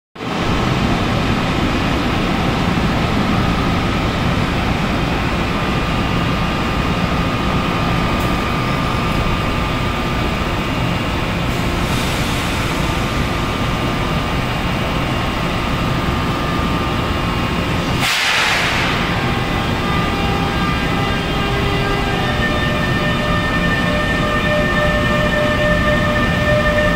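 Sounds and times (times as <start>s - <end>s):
electric locomotive inverter whine: 0.2s - 26.9s
sharp hiss: 18.0s - 18.9s.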